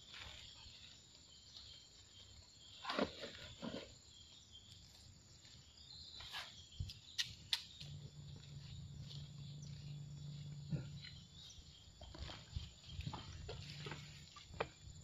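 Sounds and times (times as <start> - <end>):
faint insect chirring: 0.0 - 15.0
footsteps on wet dirt: 4.3 - 15.0.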